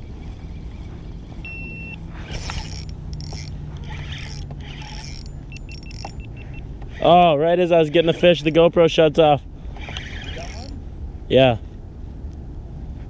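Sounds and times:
short electronic beep: 0.0 - 2.0, 5.5 - 6.7
low steady hum: 0.0 - 13.0.

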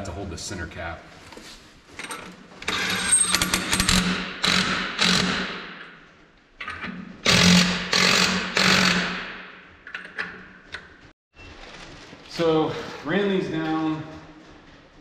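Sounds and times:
impact wrench hammering: 2.7 - 6.0, 7.2 - 9.7.

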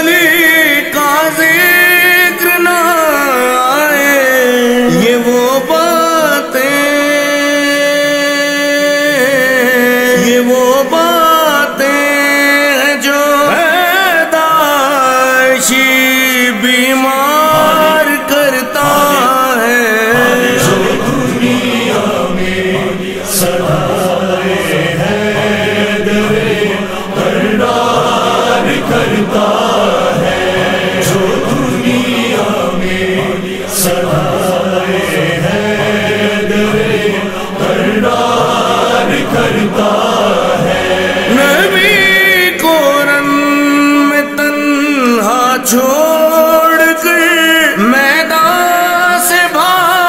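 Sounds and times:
male chorus chanting: 0.0 - 50.0
solo male voice singing: 41.3 - 50.0.

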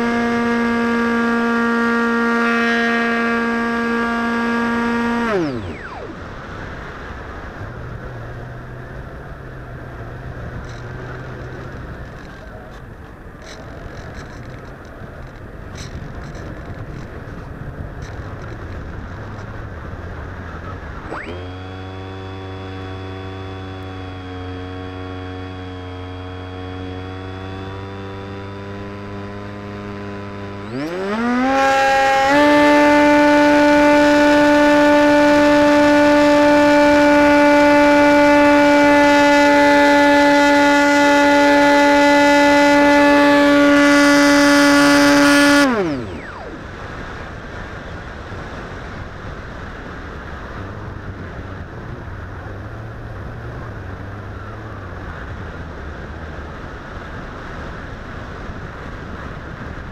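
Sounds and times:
model plane motor whining: 0.0 - 8.7, 20.6 - 48.0.

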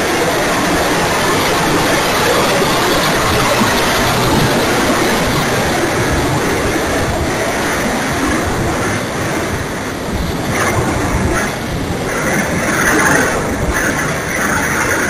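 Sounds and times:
motor and propeller noise: 0.0 - 15.0
wind rushing over microphone: 0.0 - 15.0.

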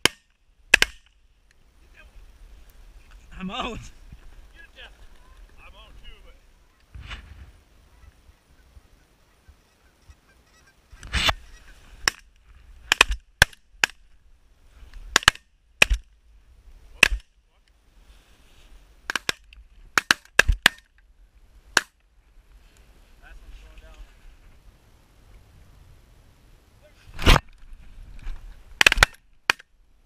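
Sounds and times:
geese honking: 7.7 - 11.9.

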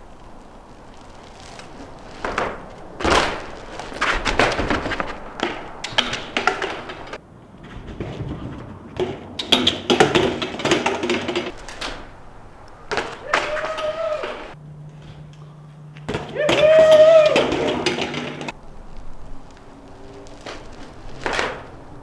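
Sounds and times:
bike knocking on rooftop: 2.1 - 12.2, 12.9 - 14.6, 16.0 - 18.6.

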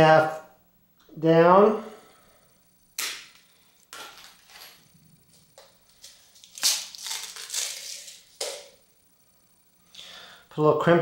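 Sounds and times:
plastic pack crinkling: 3.0 - 8.8.

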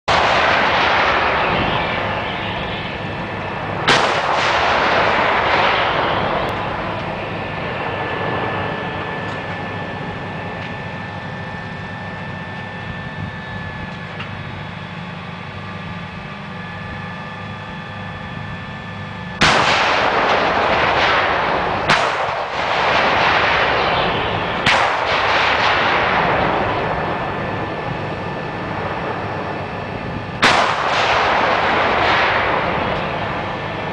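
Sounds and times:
artillery howitzer booms: 0.1 - 10.3, 19.4 - 33.9
rolling echo: 0.1 - 12.9, 19.4 - 33.9.

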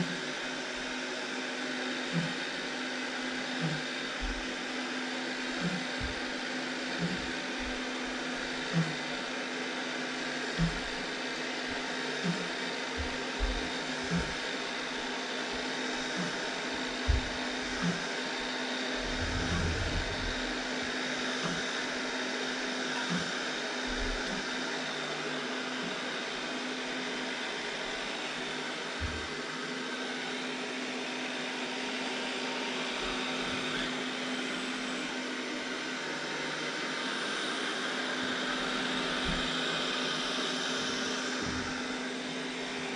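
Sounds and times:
robot vacuum motor whirring: 2.0 - 25.0, 38.2 - 42.4
low thumps: 5.6 - 6.3, 10.6 - 11.0, 12.2 - 14.4, 16.0 - 18.1.

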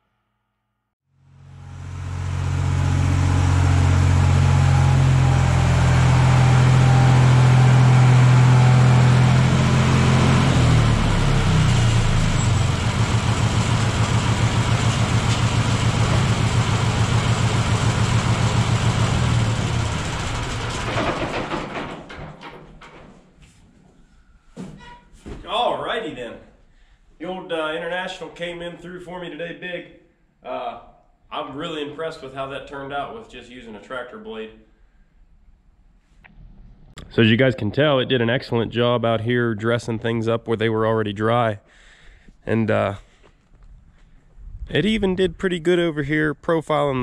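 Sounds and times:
tractor engine running: 1.2 - 22.2.

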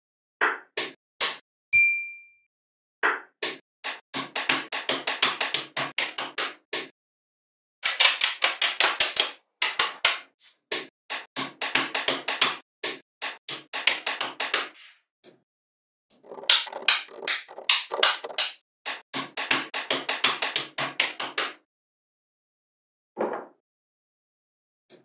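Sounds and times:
magnetic balls clicking together: 16.2 - 18.6.

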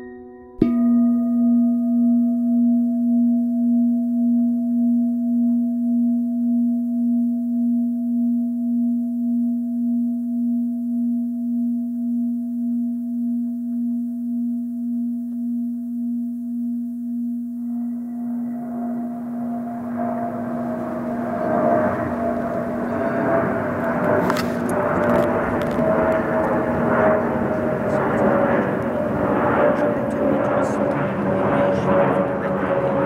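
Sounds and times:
singing bowl ringing: 0.0 - 25.7.

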